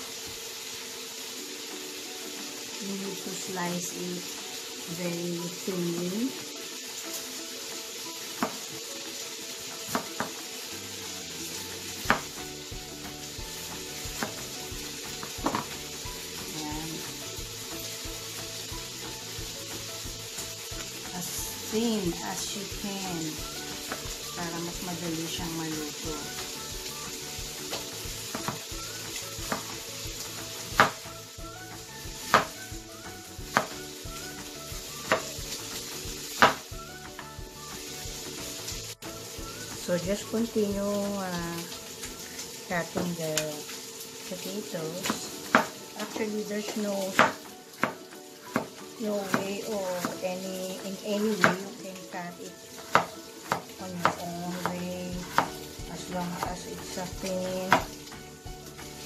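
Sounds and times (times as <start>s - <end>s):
knife slicing potato: 12.0s - 12.5s, 14.0s - 15.8s, 29.3s - 29.8s, 30.6s - 31.0s, 32.2s - 32.6s, 33.4s - 35.5s, 52.8s - 55.7s.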